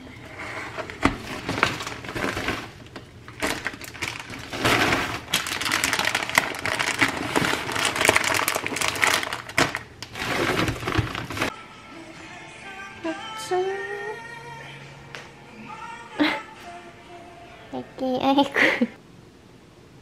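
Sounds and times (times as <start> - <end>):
plastic bags crinkling: 0.8 - 11.5.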